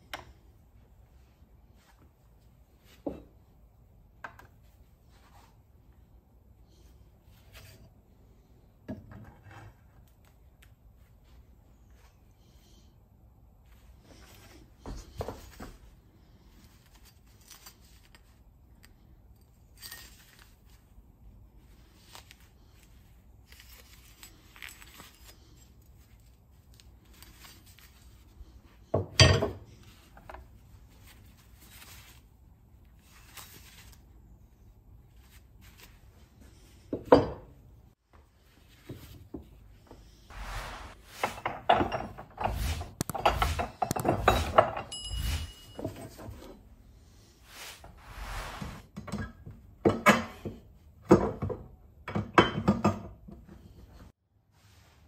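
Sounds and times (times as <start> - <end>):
metal clunks and clinks: 43.2 - 46.6
brief metallic ring: 44.9 - 45.9.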